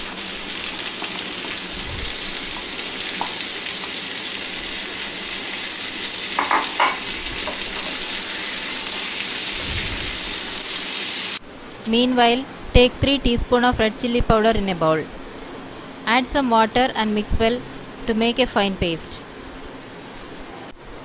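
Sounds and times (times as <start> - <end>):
onions sizzling in hot oil: 0.0 - 11.4.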